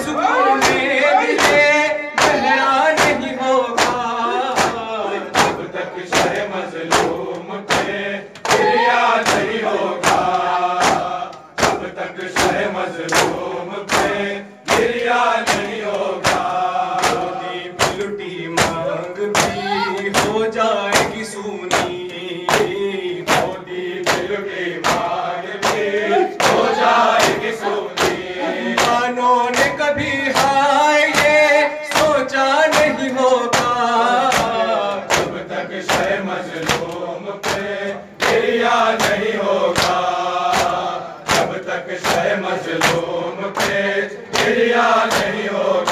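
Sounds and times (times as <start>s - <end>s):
person reciting lead: 0.0s - 3.4s, 18.0s - 22.9s, 25.8s - 30.6s
men chanting in unison: 0.0s - 45.9s
chest-beating slaps: 0.5s - 32.1s, 32.7s - 45.9s.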